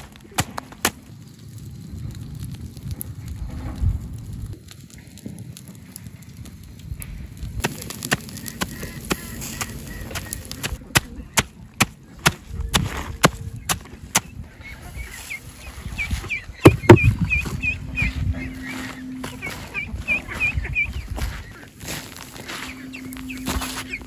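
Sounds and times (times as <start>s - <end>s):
poultry calling: 7.8s - 12.2s, 13.6s - 24.0s.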